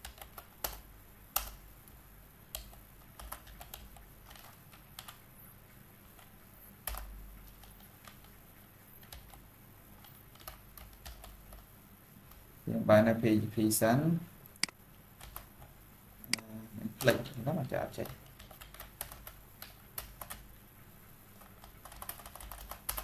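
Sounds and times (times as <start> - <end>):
computer keyboard typing: 0.0 - 1.7, 2.5 - 5.2, 6.1 - 8.4, 9.0 - 11.7, 14.6 - 15.7, 16.3 - 20.5, 21.4 - 23.0.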